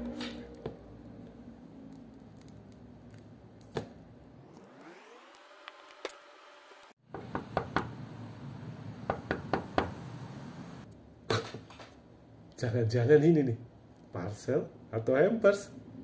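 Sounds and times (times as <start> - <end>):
rising tone sweep: 4.3 - 7.0.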